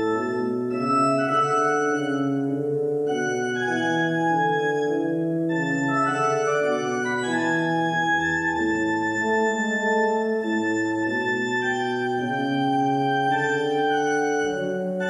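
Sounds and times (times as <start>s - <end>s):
church organ chords: 0.0s - 15.0s.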